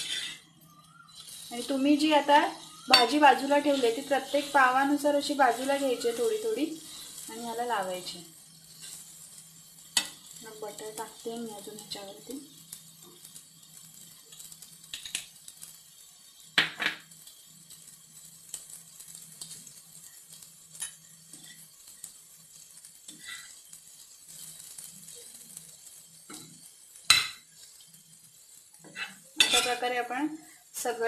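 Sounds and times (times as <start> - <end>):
metal spatula scraping on griddle: 0.0 - 12.2, 13.0 - 15.7, 16.5 - 30.2
spatula clanks: 2.8 - 3.2, 28.8 - 29.8.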